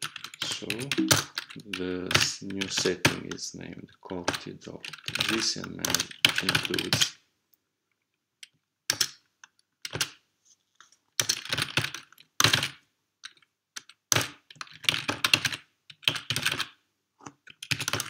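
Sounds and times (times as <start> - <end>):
typing on a keyboard: 0.0 - 3.4, 4.1 - 7.1, 8.9 - 9.2, 9.8 - 10.2, 11.2 - 18.0.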